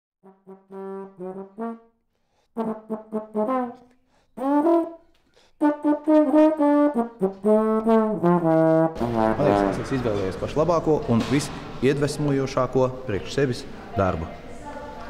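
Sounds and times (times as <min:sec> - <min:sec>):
brass instrument melody: 0:00.2 - 0:10.2.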